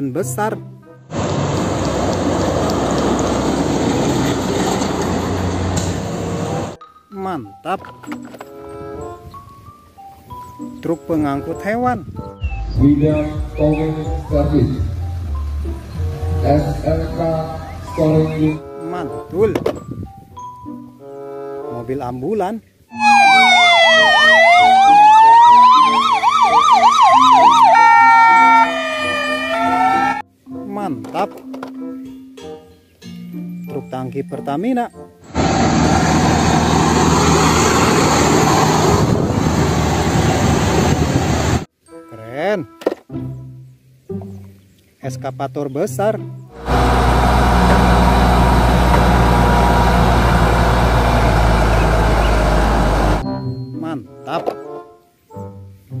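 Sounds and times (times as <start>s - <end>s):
diesel engine running steadily: 1.1s - 6.8s, 35.3s - 41.6s, 46.6s - 53.2s
siren fast warbling yelp: 22.9s - 30.2s
siren slow wail: 22.9s - 30.2s, 46.6s - 53.2s.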